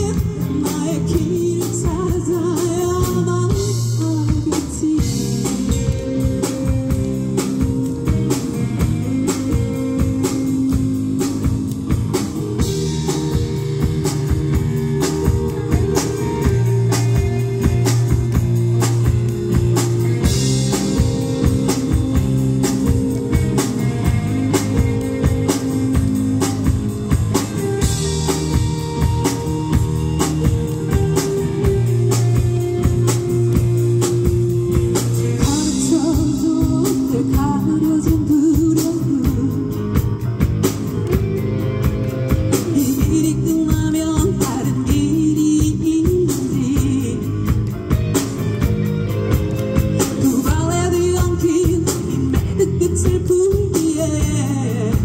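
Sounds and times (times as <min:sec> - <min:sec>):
woman singing: 0:00.0 - 0:06.2, 0:35.3 - 0:40.0, 0:42.6 - 0:47.5, 0:50.1 - 0:55.0
bass guitar: 0:00.0 - 0:55.0
drum kit beat: 0:00.0 - 0:55.0
electric guitars: 0:00.0 - 0:55.0
keyboard: 0:00.0 - 0:55.0.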